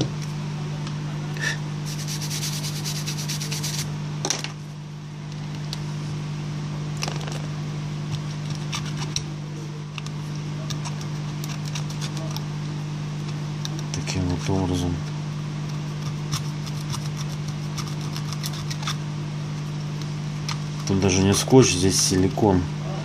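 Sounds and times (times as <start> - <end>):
small brush scrubbing: 1.8 - 3.9, 15.7 - 19.0
adhesive peeling with crackles: 9.9 - 12.5, 15.7 - 19.0.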